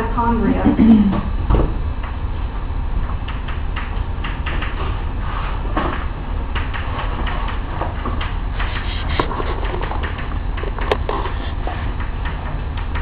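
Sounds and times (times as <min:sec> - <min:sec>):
steady low hum: 0:00.0 - 0:13.0
chalk writing on chalkboard: 0:08.6 - 0:09.3.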